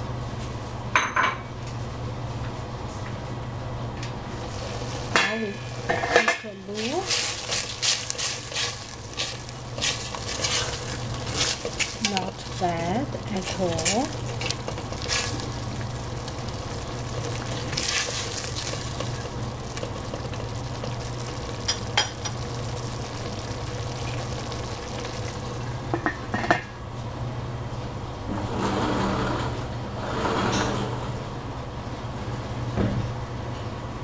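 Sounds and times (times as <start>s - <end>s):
food sizzling in pan: 4.2s - 26.4s.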